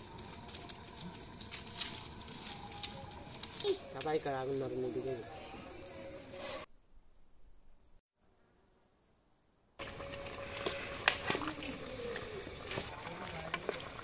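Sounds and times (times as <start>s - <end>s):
crickets chirping: 0.0s - 14.0s
thin steady whine: 9.8s - 13.3s.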